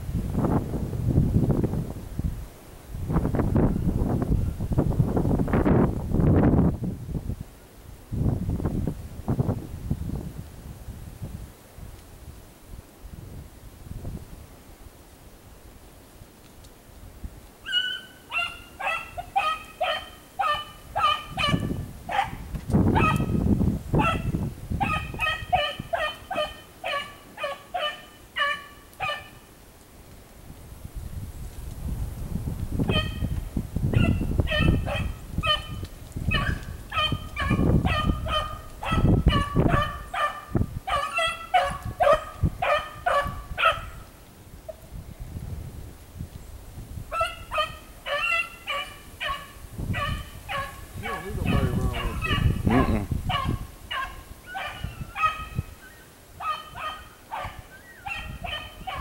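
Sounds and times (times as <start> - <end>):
beagle baying: 17.6 - 22.4, 23.0 - 23.3, 24.0 - 29.4, 33.9 - 44.0, 47.1 - 55.7, 56.4 - 59.0
dog baying short barks: 50.0 - 55.4.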